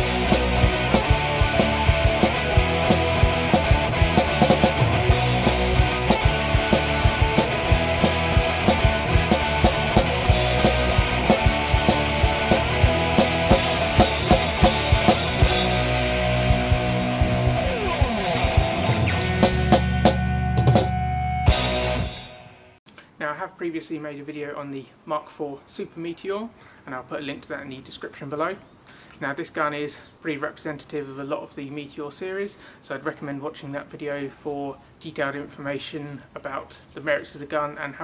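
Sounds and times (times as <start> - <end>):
rock music with drums and guitar: 0.0 - 22.8.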